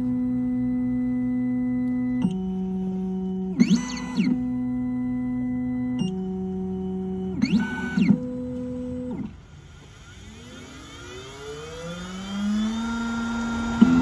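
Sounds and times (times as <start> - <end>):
key-cutting machine motor: 0.0 - 14.0
short rising-and-falling whines: 9.3 - 14.0.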